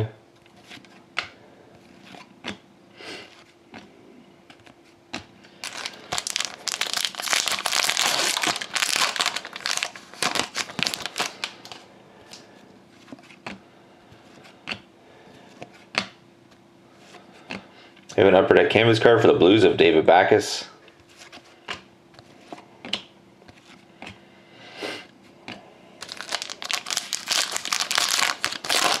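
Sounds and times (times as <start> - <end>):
foil wrapper crinkling and tearing: 5.6 - 12.4, 26.0 - 29.0.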